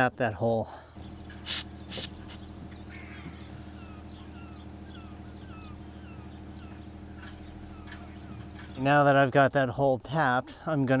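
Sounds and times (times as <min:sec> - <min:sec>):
steady low hum: 0:00.6 - 0:10.8
bird calling: 0:00.9 - 0:09.2
aerosol can spraying: 0:01.4 - 0:02.4.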